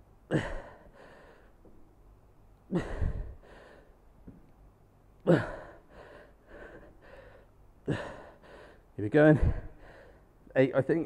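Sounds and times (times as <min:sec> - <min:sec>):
quiet breaths: 0:00.3 - 0:04.6, 0:05.2 - 0:10.6
man exhaling forcefully: 0:02.7 - 0:03.4.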